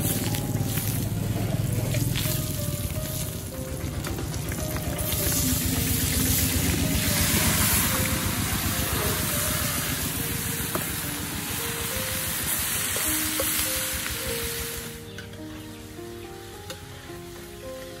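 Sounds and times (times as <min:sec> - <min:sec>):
meat sizzling in a wok: 0:00.0 - 0:03.5, 0:04.3 - 0:15.1
background music: 0:00.0 - 0:18.0.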